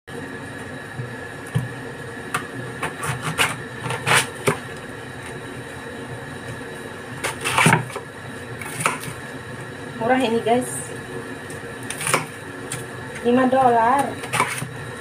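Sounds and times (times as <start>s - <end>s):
knife cutting cabbage on board: 2.8s - 4.6s, 7.2s - 8.0s, 14.0s - 14.7s.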